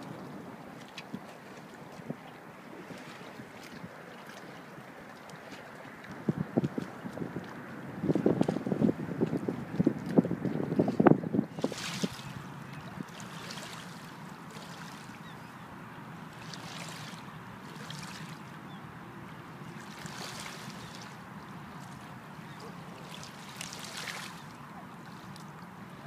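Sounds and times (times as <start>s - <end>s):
waves lapping on pebble shore: 11.6s - 12.5s, 13.1s - 15.1s, 16.4s - 18.4s, 19.8s - 21.2s, 23.0s - 24.6s.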